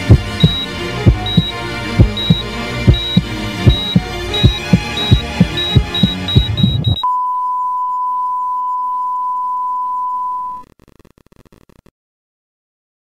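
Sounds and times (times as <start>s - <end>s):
music: 0.0s - 7.0s
racing heartbeat thumps: 0.0s - 7.0s
steady flatline tone: 0.0s - 11.7s
high monitor beeps: 0.4s - 10.6s.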